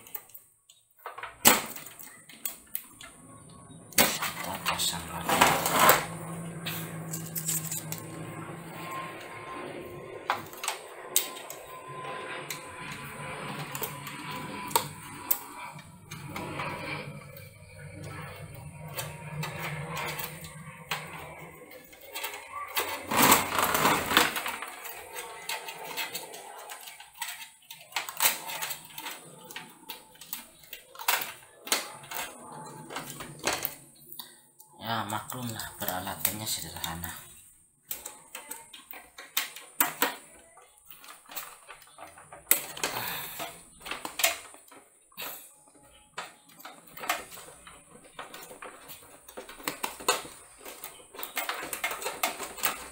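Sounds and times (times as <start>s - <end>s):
clicks and rattles of computer parts: 0.0s - 3.2s, 3.9s - 9.1s, 10.2s - 11.8s, 12.5s - 34.4s, 35.1s - 52.9s
scraping rustle: 3.9s - 12.4s, 18.2s - 34.0s.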